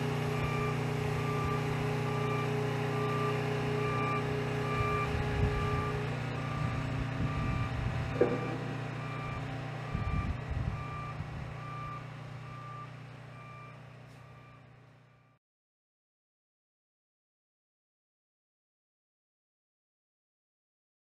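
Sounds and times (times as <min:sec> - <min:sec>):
diesel truck engine running: 0:00.0 - 0:15.4
backup alarm beeping: 0:00.3 - 0:15.4
sharp knock: 0:08.2 - 0:08.7.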